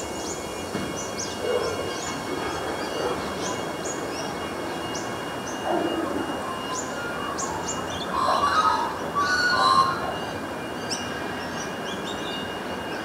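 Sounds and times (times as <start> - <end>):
train wheels rumbling on rail: 0.0 - 8.1.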